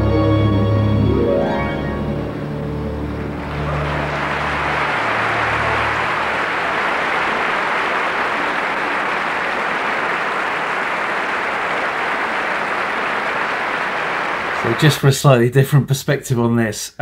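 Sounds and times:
orchestra low sustained notes: 0.0 - 7.5
audience applauding: 2.0 - 15.4.

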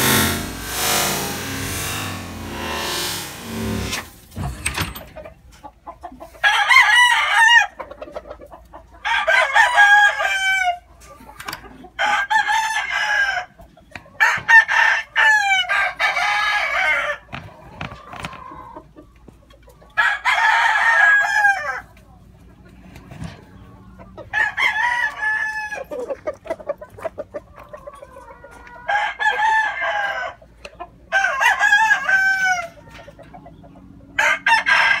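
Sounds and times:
rooster crowing: 24.3 - 25.9, 31.1 - 32.8, 34.2 - 35.0.

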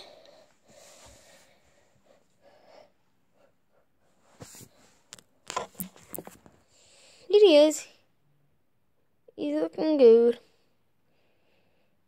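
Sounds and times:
faint breathing: 0.0 - 4.2, 6.6 - 7.3, 10.6 - 12.0.

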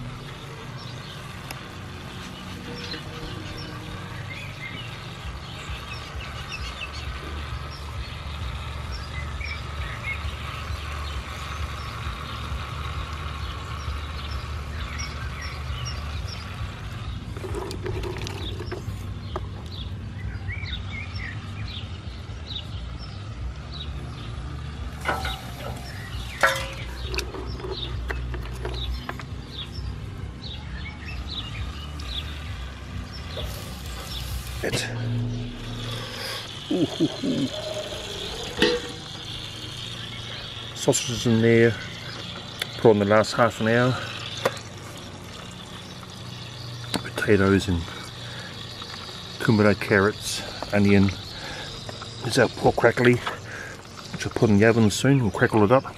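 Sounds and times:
small birds chirping: 0.0 - 55.9
steady low rumble: 13.8 - 42.8
wood chips knocking and clattering: 25.0 - 29.3.

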